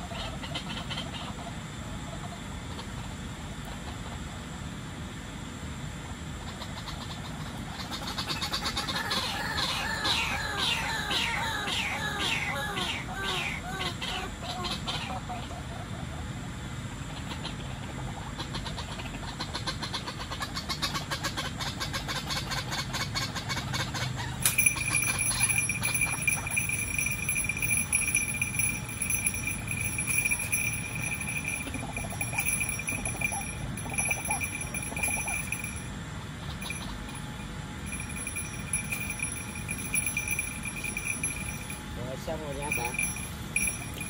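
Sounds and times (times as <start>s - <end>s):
fast ticking trill: 24.4s - 44.0s.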